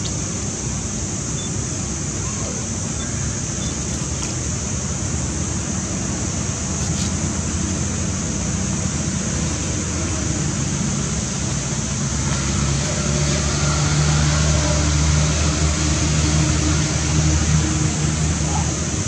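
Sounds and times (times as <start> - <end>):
high hiss: 0.0 - 19.0
faint high chirps: 1.4 - 3.8.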